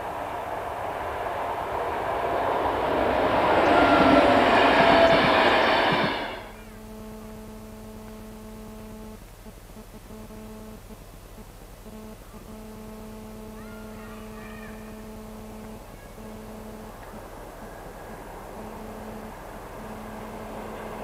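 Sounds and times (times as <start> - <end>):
passing train: 0.0 - 6.9, 13.8 - 21.0
steady low hum: 0.0 - 21.0.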